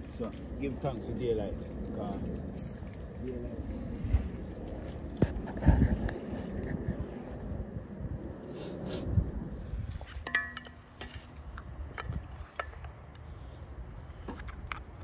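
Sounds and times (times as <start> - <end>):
metal cookware clinking: 10.2 - 11.3.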